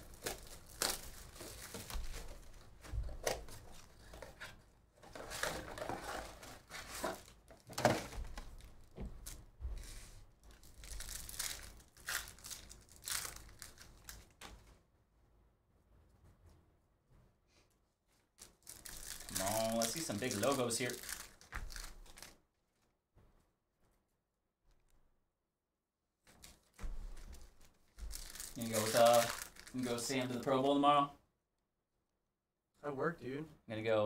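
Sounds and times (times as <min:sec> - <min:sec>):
wrappers crinkling and tearing: 0:00.0 - 0:02.8, 0:05.1 - 0:09.4, 0:10.4 - 0:14.6, 0:18.4 - 0:22.4, 0:26.2 - 0:30.8.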